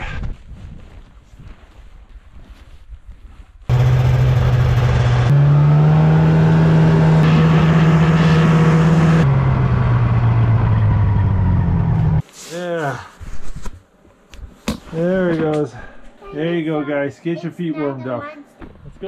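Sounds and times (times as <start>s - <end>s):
snowmobile engine running: 3.7s - 12.2s.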